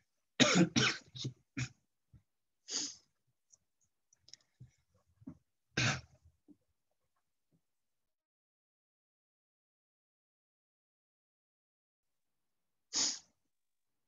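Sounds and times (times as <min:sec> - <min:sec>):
man coughing: 0:00.4 - 0:01.8.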